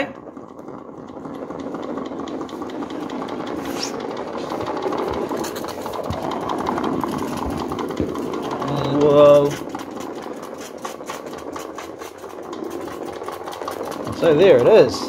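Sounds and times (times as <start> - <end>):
small steam engine chattering: 0.0 - 15.0.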